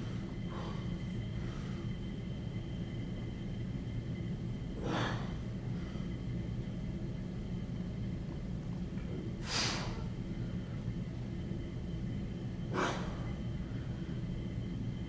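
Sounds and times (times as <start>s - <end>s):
steady low hum: 0.0s - 15.0s
forceful breaths out: 9.4s - 10.1s.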